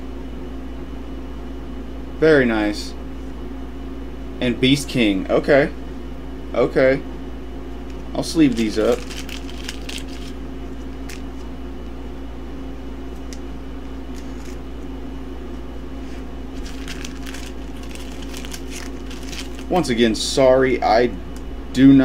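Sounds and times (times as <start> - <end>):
low background hum: 0.0 - 22.0
plastic sleeves crinkling: 8.3 - 11.5, 14.1 - 14.6, 16.0 - 20.0.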